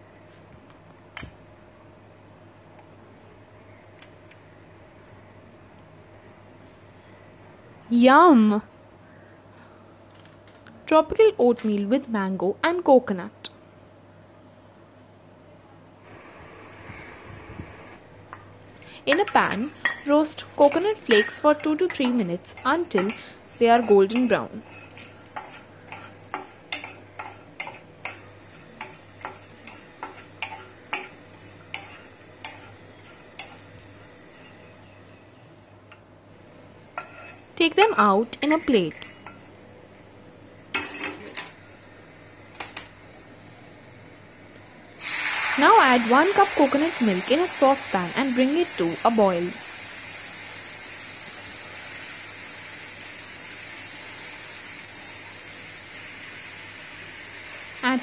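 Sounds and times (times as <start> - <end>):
utensil tapping and scraping a pan: 19.1 - 28.2, 28.8 - 33.7
coconut milk hissing in a wok: 45.0 - 58.0.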